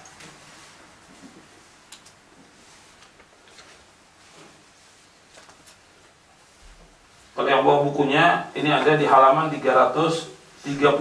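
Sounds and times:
book pages rustling: 1.2 - 5.9.

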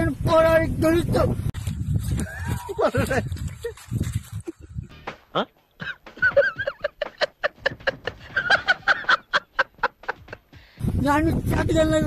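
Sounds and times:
man laughing hard: 4.4 - 10.5.

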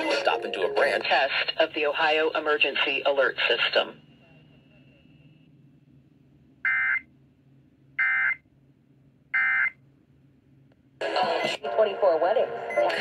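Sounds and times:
faint hum: 0.0 - 13.0.

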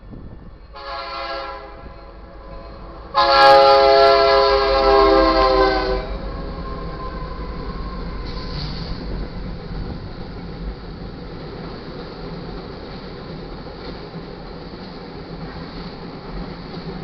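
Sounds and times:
train rumble: 0.0 - 17.0
locomotive air horn blasts: 0.7 - 6.3.

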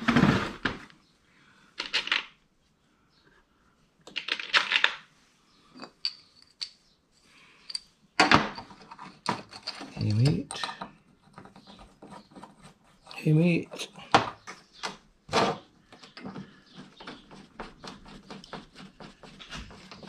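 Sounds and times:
small metal parts clattering: 1.8 - 2.4, 4.1 - 5.0, 7.6 - 11.6.

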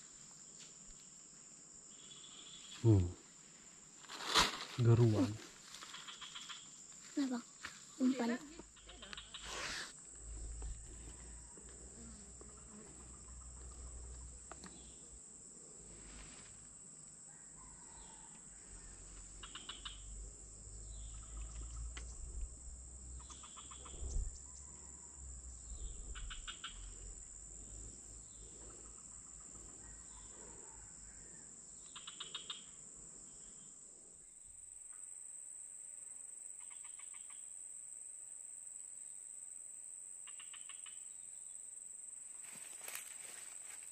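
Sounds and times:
rapid chirping trills: 23.2 - 24.4, 25.6 - 27.4.

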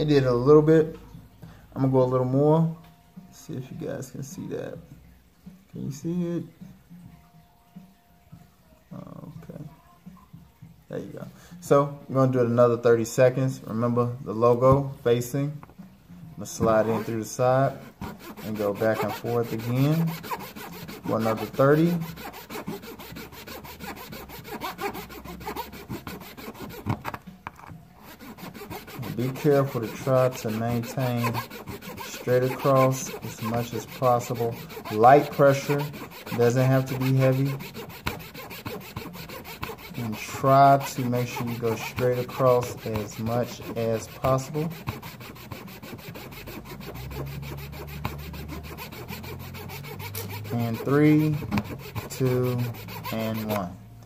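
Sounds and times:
metal blade rasping: 16.6 - 27.2, 28.0 - 53.8.

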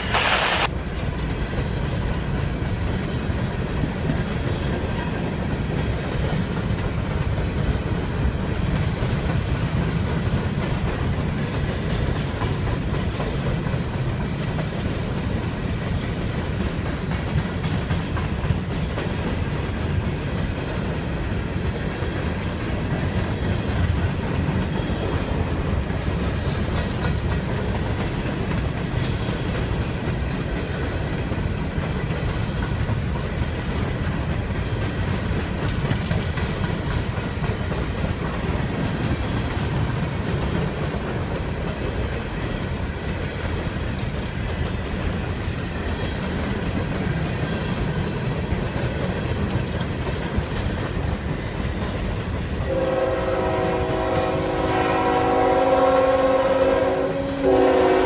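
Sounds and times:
short loud burst: 0.0 - 0.7
freight train rumbling past: 0.0 - 58.0
wheels clicking over rail joints: 0.8 - 52.6.

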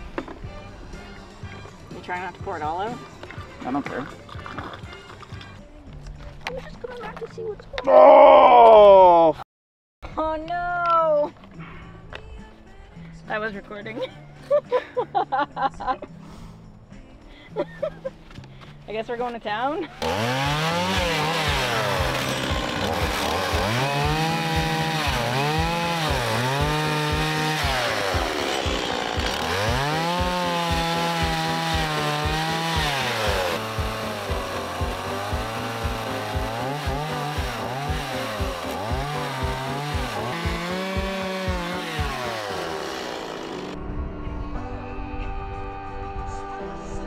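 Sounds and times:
chainsaw cutting timber: 19.9 - 43.8.

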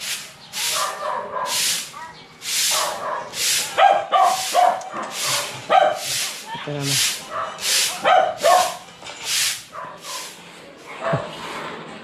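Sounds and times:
broom sweeping concrete floor: 0.0 - 12.0
dog barking: 0.6 - 6.2, 7.3 - 8.8, 9.7 - 11.3.

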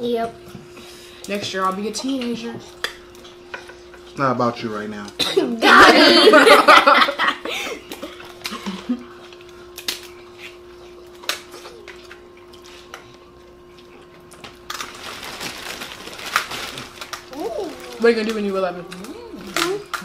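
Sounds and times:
faint steady hum: 0.0 - 20.0
crab shells cracking: 9.4 - 10.2, 14.3 - 20.0
plastic bag rustling: 14.6 - 20.0.

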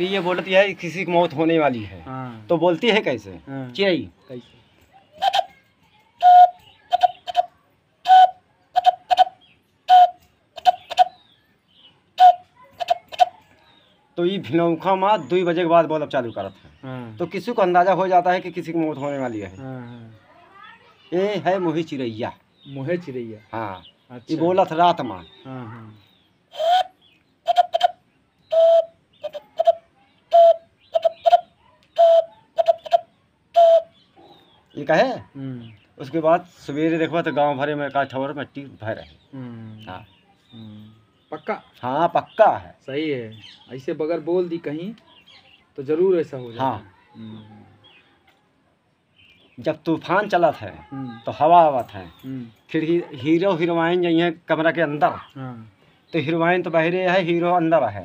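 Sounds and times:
hand-cupped whistle hooting: 6.2 - 7.5, 8.1 - 9.3, 9.9 - 11.1, 12.2 - 12.4, 26.5 - 29.0, 29.6 - 34.0.

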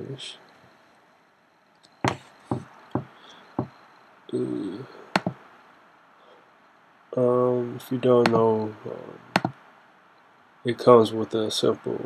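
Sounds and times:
low hum of voice: 4.3 - 5.0
computer mouse clicks: 5.2 - 5.4, 9.4 - 9.6.

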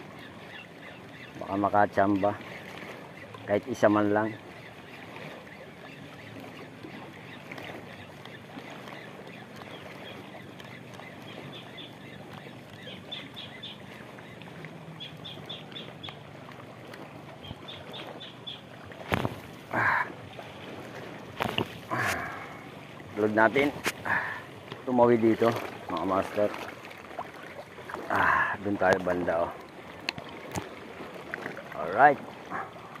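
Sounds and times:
sea waves lapping: 0.0 - 33.0
rustling splash: 18.8 - 22.6, 25.3 - 28.2.

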